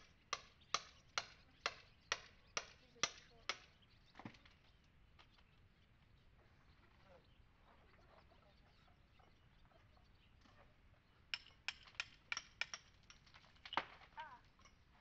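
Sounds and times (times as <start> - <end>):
chisels clinking on stone: 11.3 - 13.8.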